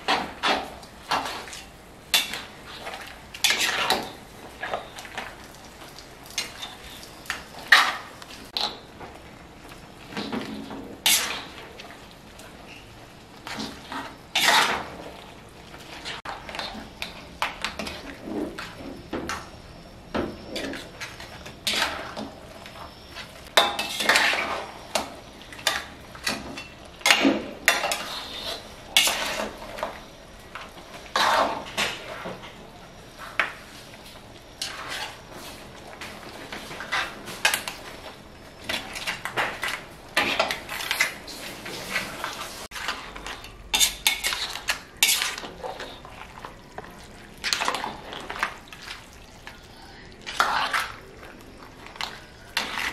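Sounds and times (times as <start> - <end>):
metal spatula scraping wok: 0.0 - 4.9, 10.6 - 11.6, 13.4 - 15.0, 15.9 - 17.0, 20.4 - 25.0, 27.0 - 29.9, 30.9 - 32.5, 34.6 - 35.7, 38.6 - 46.1, 50.2 - 51.1, 52.0 - 52.9.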